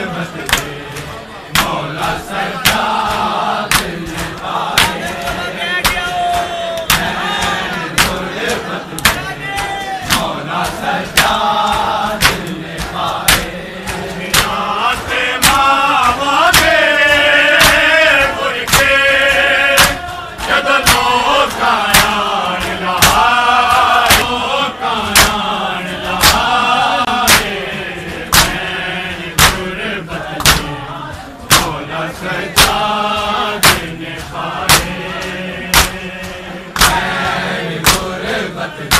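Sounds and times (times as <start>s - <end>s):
men chanting in unison: 0.0s - 38.9s
hands striking chests: 33.6s - 33.9s.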